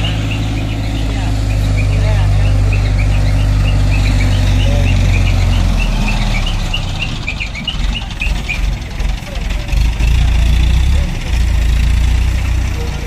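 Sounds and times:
small birds chirping: 0.0s - 9.0s
diesel engine running: 0.0s - 13.0s.

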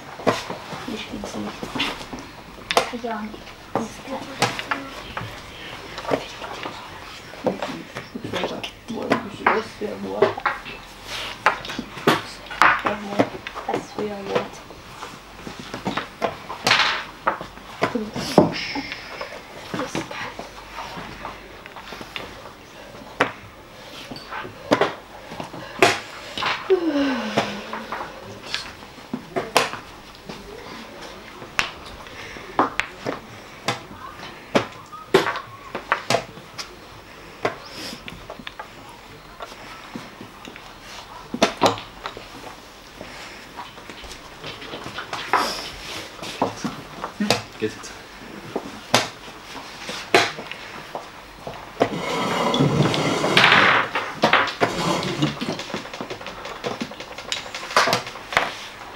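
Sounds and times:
chess pieces clicking on board: 51.4s - 58.8s.

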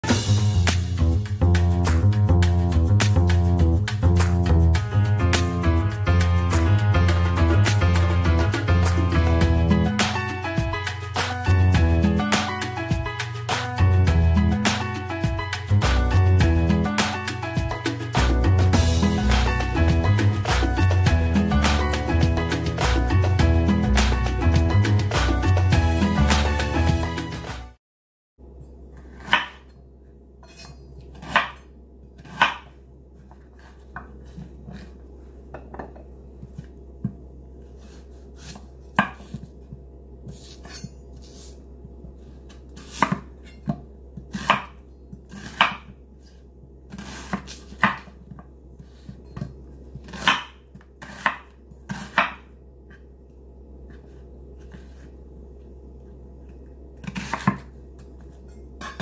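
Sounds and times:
steady low hum: 28.4s - 59.0s.

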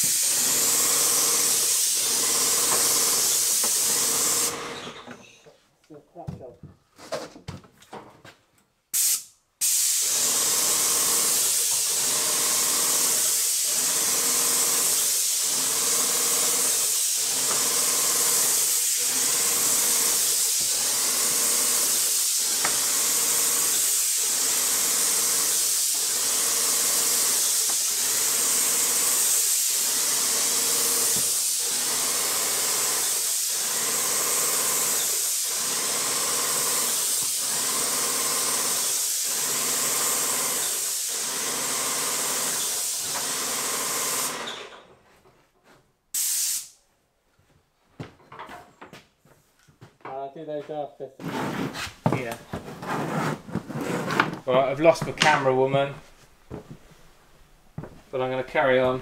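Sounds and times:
paint sprayer hissing: 0.0s - 4.7s, 9.0s - 44.5s, 46.2s - 46.8s.

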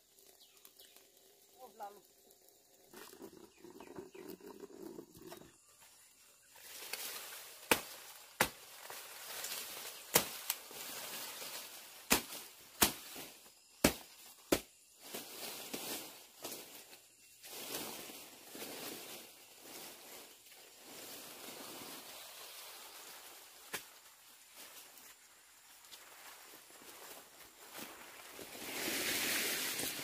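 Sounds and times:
leaves rustling: 0.0s - 3.6s, 5.6s - 30.0s
blade chopping grass stalks: 6.8s - 14.7s.

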